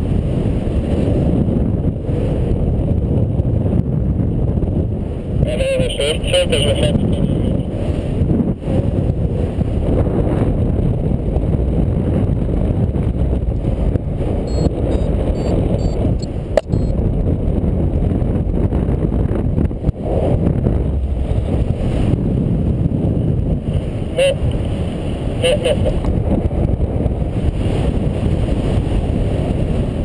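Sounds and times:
wind buffeting microphone: 0:00.0 - 0:30.0
quick high electronic beeps: 0:14.5 - 0:16.0, 0:16.6 - 0:16.9
sharp click: 0:16.6 - 0:16.9.

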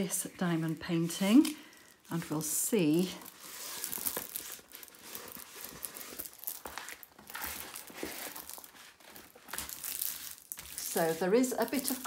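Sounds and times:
plastic cover crinkling: 0:00.0 - 0:12.0.

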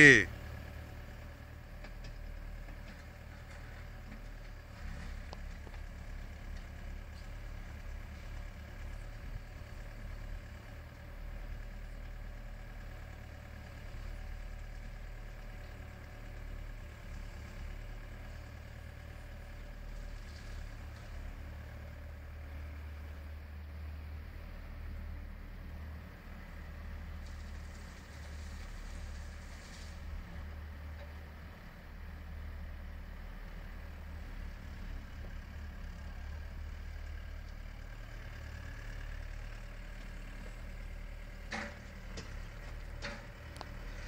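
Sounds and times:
excavator diesel engine running: 0:00.0 - 0:44.0.

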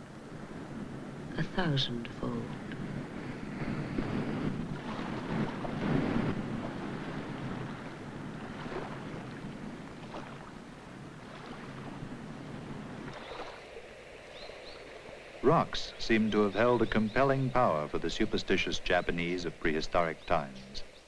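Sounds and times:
surf breaking against rocks: 0:02.8 - 0:10.6.

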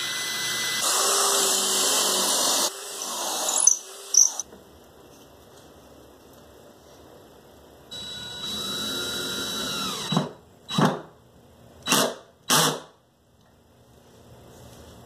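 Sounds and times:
cordless drill whining: 0:00.0 - 0:04.4, 0:08.0 - 0:10.2.

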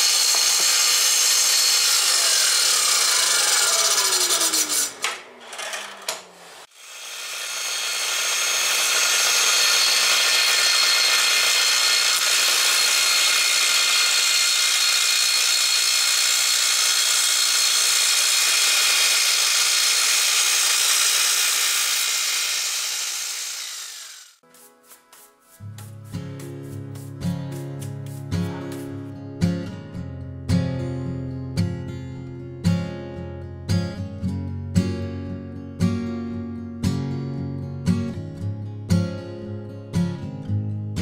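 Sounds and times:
saw motor winding down: 0:00.0 - 0:24.4
dust extraction: 0:00.0 - 0:29.1
saw cutting wood: 0:00.0 - 0:29.1.

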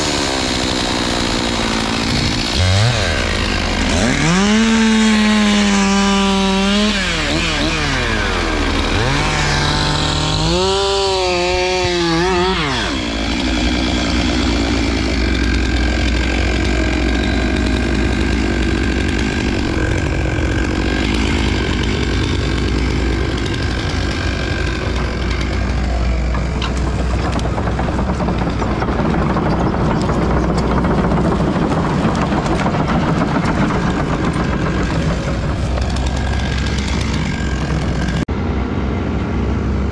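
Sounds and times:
chainsaw revving: 0:00.0 - 0:38.3
heavy machine engine running: 0:00.0 - 0:39.9.

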